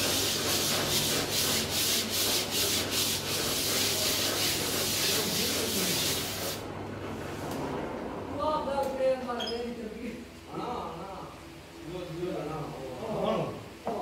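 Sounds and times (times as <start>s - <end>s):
sandpaper scratching spinning drum: 0.0s - 6.7s.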